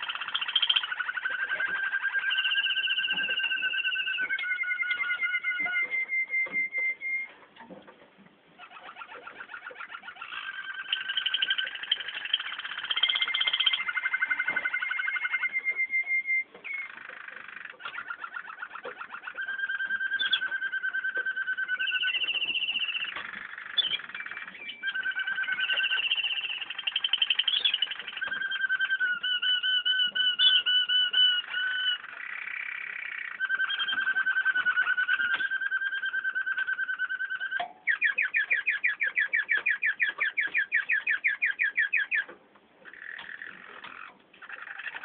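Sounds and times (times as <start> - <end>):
canaries singing: 0.0 - 45.0.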